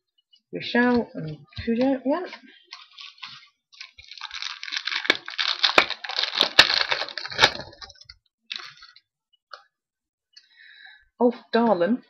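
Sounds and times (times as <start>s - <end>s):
wrapper crinkling and tearing: 2.7s - 9.0s.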